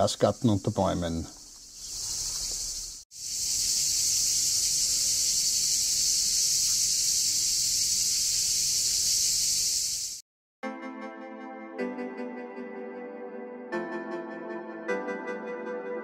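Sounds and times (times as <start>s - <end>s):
cicadas buzzing: 0.0s - 10.2s.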